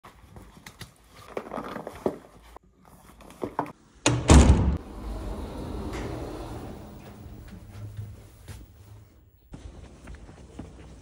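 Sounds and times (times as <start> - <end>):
wooden door shutting: 4.1 - 7.5.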